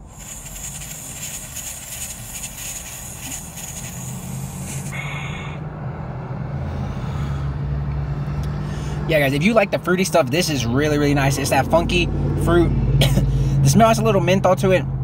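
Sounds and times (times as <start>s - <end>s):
air rushing: 0.0s - 5.8s
short breath: 4.6s - 5.7s, 6.7s - 7.7s, 8.6s - 9.1s, 13.2s - 13.6s.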